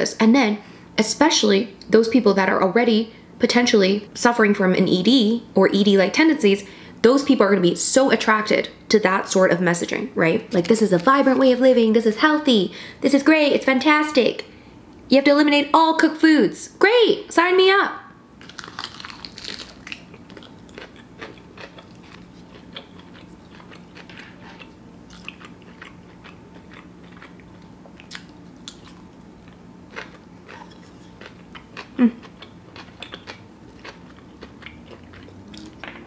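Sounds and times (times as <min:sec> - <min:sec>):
person chewing crunchy food: 0:18.4 - 0:36.0.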